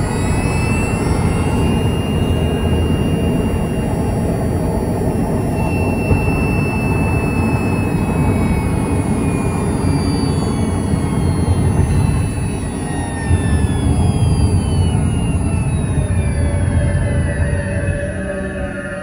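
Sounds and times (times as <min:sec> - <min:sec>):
electric motor whine: 0:00.0 - 0:19.0
low rumble: 0:00.0 - 0:19.0.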